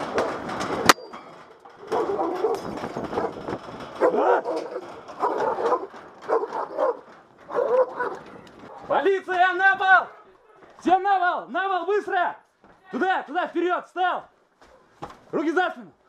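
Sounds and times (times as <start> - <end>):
dog barking: 1.8 - 2.6, 4.0 - 9.0.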